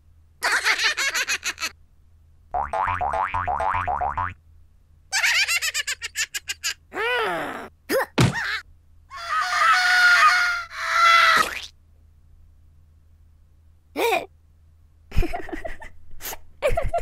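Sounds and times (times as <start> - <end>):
cartoon screams: 6.9 - 11.7.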